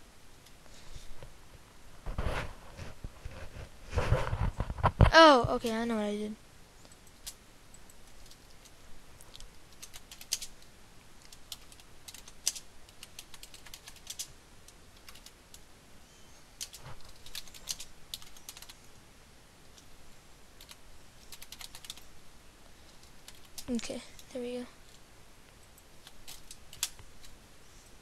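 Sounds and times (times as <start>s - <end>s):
computer keyboard typing: 9.3s - 10.6s, 11.2s - 14.3s, 14.9s - 15.4s, 16.6s - 18.8s, 20.6s - 22.0s, 22.9s - 23.8s, 26.0s - 27.3s.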